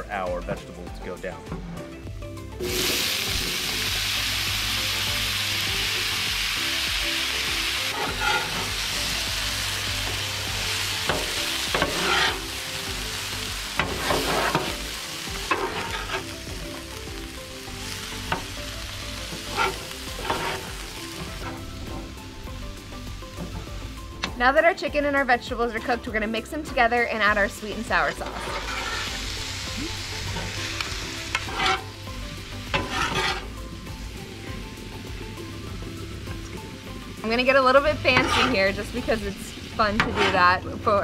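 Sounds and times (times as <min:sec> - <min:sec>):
vegetables sizzling on a hot griddle: 0:02.6 - 0:24.2, 0:27.2 - 0:40.9
metal spatulas scraping and clacking: 0:07.9 - 0:08.7, 0:11.1 - 0:12.4, 0:19.3 - 0:20.7, 0:28.2 - 0:29.1, 0:31.3 - 0:31.9, 0:32.7 - 0:33.5, 0:38.1 - 0:38.6, 0:40.0 - 0:40.5.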